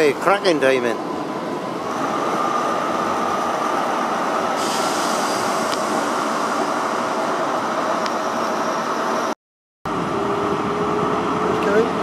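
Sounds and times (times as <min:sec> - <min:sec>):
diesel train engines droning: 0:00.0 - 0:12.0
hiss: 0:04.6 - 0:06.0.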